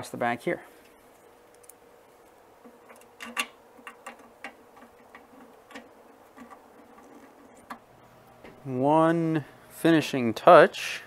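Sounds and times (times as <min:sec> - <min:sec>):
metal screws clicking: 0:02.8 - 0:07.8.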